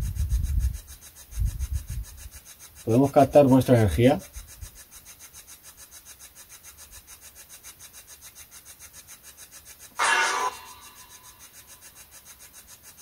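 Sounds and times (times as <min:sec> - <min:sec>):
pulsing radio static: 0:10.0 - 0:11.4.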